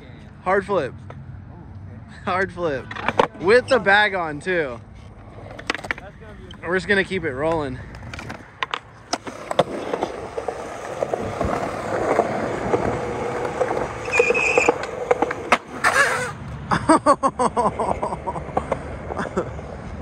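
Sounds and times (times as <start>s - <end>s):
skateboard wheels rolling on concrete: 0.0s - 20.0s
skateboard clicks: 2.8s - 3.8s, 4.7s - 6.6s, 7.5s - 16.6s, 18.0s - 20.0s
skateboard landing clatter: 8.0s - 16.1s.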